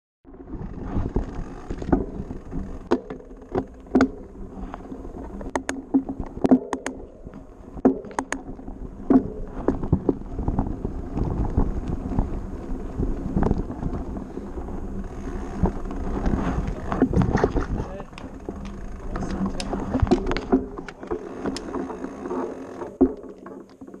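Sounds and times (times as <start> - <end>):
tyres rolling over grass and gravel: 0.3 - 6.5, 7.2 - 24.0
bike and mount clicks and knocks: 1.0 - 12.2, 15.0 - 24.0.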